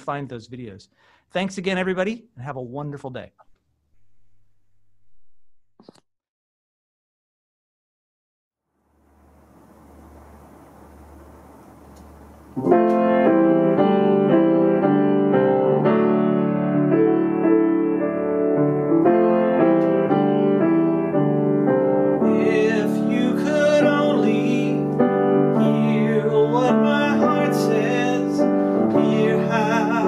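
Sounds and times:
faint room hiss: 8.7s - 13.8s
grand piano chords: 9.0s - 30.0s
man singing: 22.2s - 30.0s.

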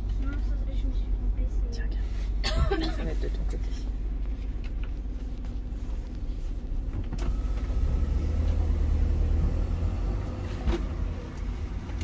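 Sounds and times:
engine idling low rumble: 0.0s - 12.0s.

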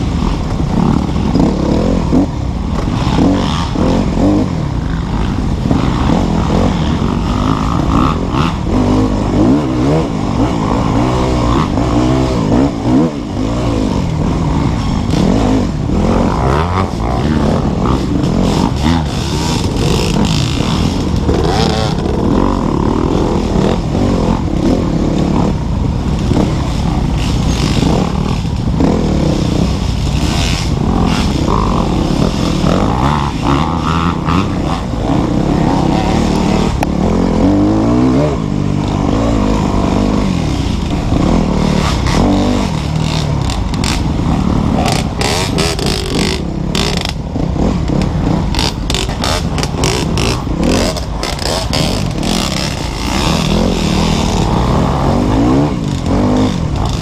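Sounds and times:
dirt bike engine revving: 0.0s - 57.0s
bike knocking and rattling: 14.2s - 37.8s, 38.6s - 57.0s.

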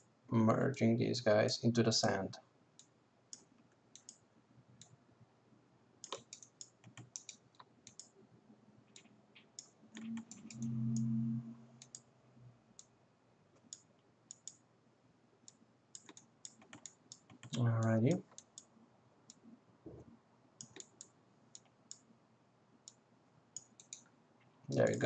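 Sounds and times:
computer mouse clicks: 2.8s - 4.2s, 6.0s - 8.2s, 8.9s - 11.2s, 11.8s - 12.1s, 13.5s - 14.6s, 15.4s - 18.7s, 19.3s - 22.1s, 22.8s - 25.0s
brief low hum: 10.0s - 11.8s.

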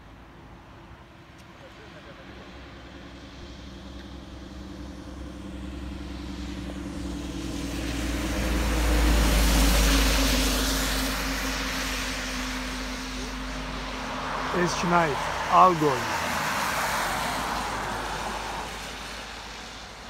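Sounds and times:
truck engine hum: 0.0s - 20.0s
tyre hiss on wet road: 15.2s - 20.0s.

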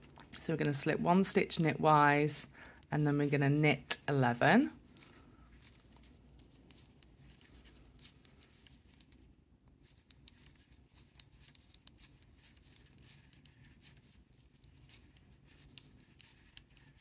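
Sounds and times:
metal knitting needles clicking: 9.8s - 17.0s.

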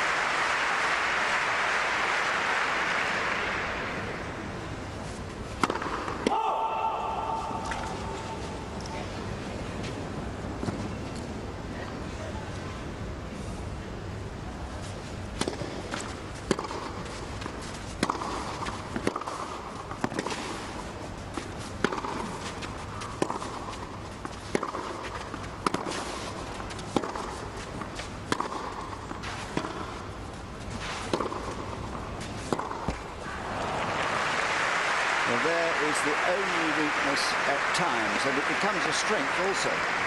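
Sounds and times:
low crowd background: 0.0s - 40.0s
tennis racquet hitting ball: 2.4s - 8.7s, 15.3s - 33.6s.

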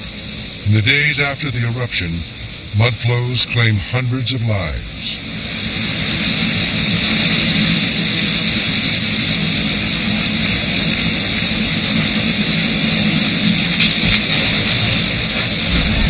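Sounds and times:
mudflow rushing: 10.3s - 16.0s.

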